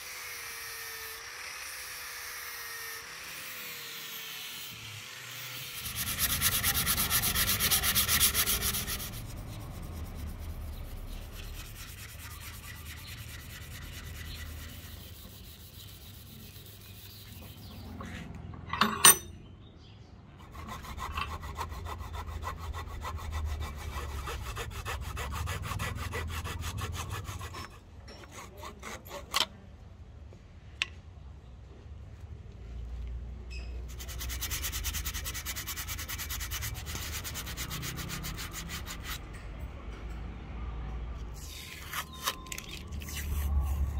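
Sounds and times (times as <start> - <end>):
disc sander on wood: 0.0 - 18.2
rubbing and scraping on wood: 5.8 - 18.7, 33.9 - 39.4, 41.4 - 43.9.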